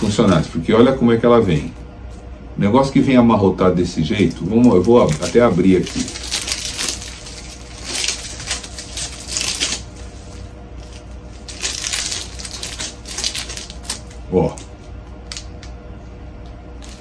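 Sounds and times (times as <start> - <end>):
thin plastic crinkling: 4.0 - 15.8, 16.4 - 17.0.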